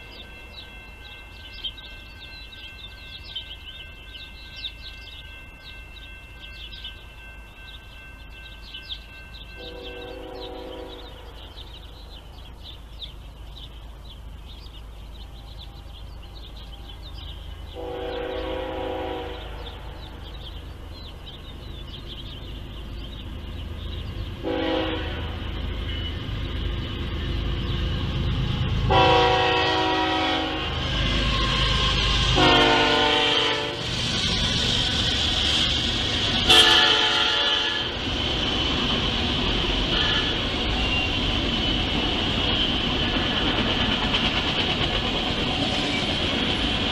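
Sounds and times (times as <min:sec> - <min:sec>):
freight train rumble: 0:00.0 - 0:46.9
rail cars rolling by: 0:00.0 - 0:46.9
locomotive horn blasts: 0:09.6 - 0:11.4, 0:17.8 - 0:19.6, 0:24.4 - 0:26.2, 0:28.9 - 0:31.3, 0:32.4 - 0:33.8, 0:36.5 - 0:38.0, 0:39.9 - 0:41.1.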